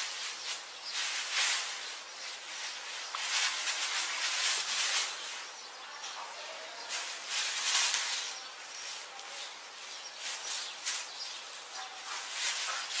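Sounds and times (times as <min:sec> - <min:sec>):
plastic bag crinkling and rustling: 0:00.0 - 0:05.6, 0:06.8 - 0:13.0.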